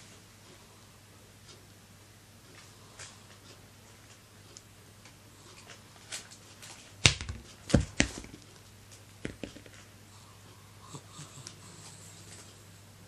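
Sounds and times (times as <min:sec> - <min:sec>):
orange knocking on wicker basket: 0:07.1 - 0:08.4, 0:09.2 - 0:09.8.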